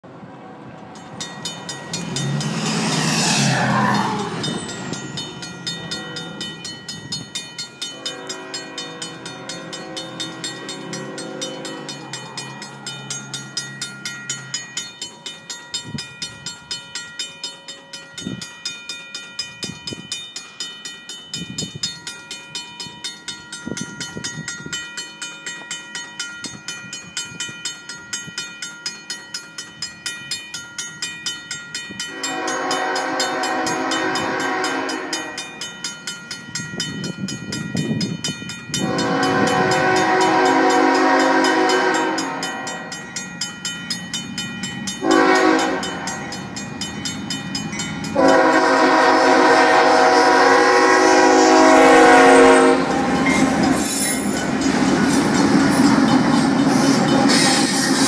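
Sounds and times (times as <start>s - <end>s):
railroad crossing bells ringing: 0.1s - 58.0s
vehicle passing: 2.0s - 4.7s
distant locomotive horn: 7.9s - 11.9s, 32.1s - 35.6s, 38.8s - 42.9s, 45.0s - 46.2s, 48.1s - 54.3s.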